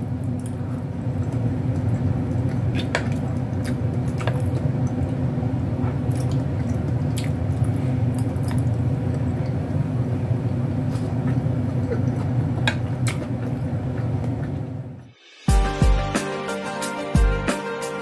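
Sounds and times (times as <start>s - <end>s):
steady low hum: 0.0s - 15.1s
woman chewing pasta: 0.2s - 9.8s, 10.5s - 14.8s.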